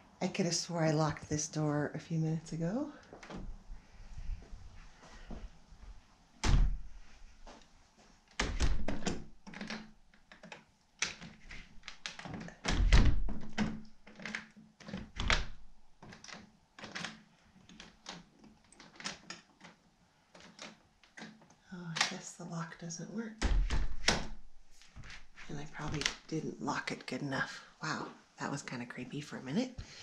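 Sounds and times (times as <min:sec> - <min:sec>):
door lock clicking and rattling: 0:06.4 - 0:06.9, 0:08.3 - 0:21.6, 0:23.4 - 0:24.5
door thunks: 0:06.4 - 0:06.9, 0:08.4 - 0:09.3, 0:12.6 - 0:13.8, 0:23.4 - 0:24.4.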